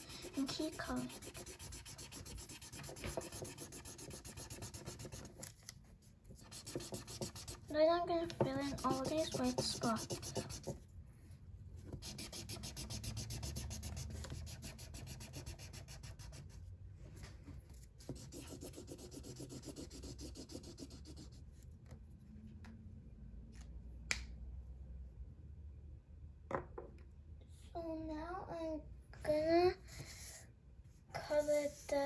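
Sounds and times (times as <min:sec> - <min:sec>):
marker scratching on paper: 0:00.0 - 0:05.5, 0:06.4 - 0:07.7, 0:08.3 - 0:10.8, 0:11.9 - 0:16.6, 0:18.0 - 0:21.4.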